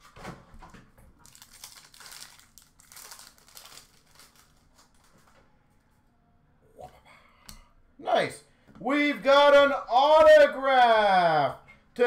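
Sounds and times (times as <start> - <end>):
foil wrapper tearing and crinkling: 1.2 - 5.1.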